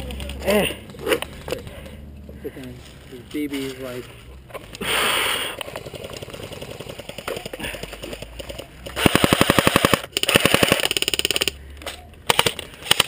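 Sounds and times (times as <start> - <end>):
faint rapid firing: 5.7 - 11.6
airsoft rifle automatic fire: 5.8 - 11.6, 12.3 - 13.0.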